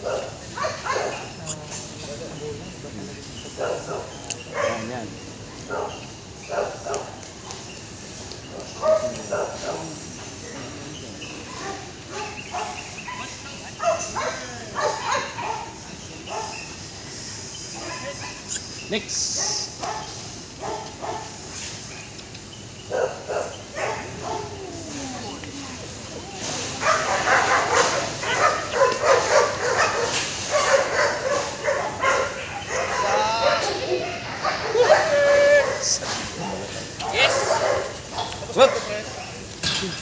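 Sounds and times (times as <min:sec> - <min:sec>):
dog barking: 0:00.0 - 0:01.4, 0:03.6 - 0:04.9, 0:05.6 - 0:07.2, 0:08.5 - 0:09.9, 0:11.5 - 0:16.7, 0:19.4 - 0:21.4, 0:22.9 - 0:24.7, 0:26.6 - 0:39.3.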